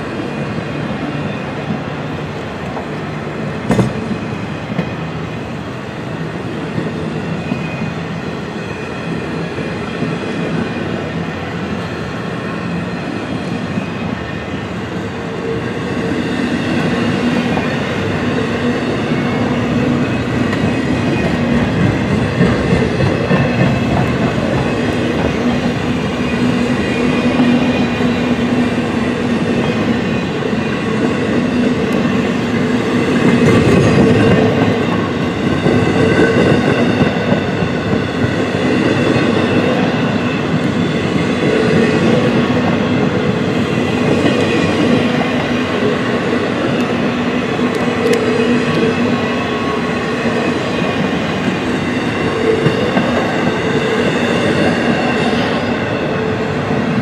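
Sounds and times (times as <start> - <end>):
freight train wheels clattering: 3.6 - 5.2, 16.1 - 57.0.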